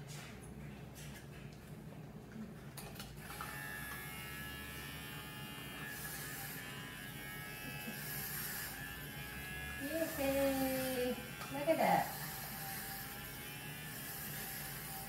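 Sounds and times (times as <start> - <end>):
electric hair clippers buzzing: 3.2 - 15.0.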